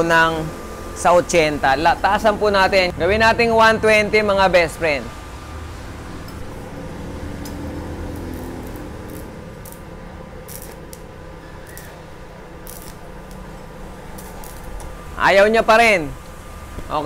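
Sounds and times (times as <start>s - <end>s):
low steady hum: 0.0s - 17.0s
welding rod scratching and crackling: 6.2s - 15.0s.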